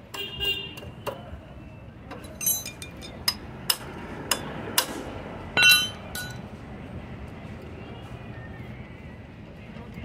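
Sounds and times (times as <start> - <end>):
metal tools knocking on engine: 2.1 - 5.0, 5.6 - 6.4
ringing metal clink: 2.2 - 3.4, 5.6 - 6.4.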